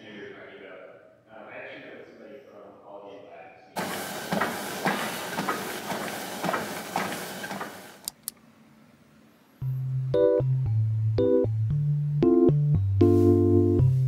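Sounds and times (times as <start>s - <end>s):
footfalls on treadmill belt: 3.8s - 8.0s
treadmill running: 3.8s - 8.1s
sharp clicks: 7.5s - 8.4s
soft keyboard music: 9.6s - 14.0s.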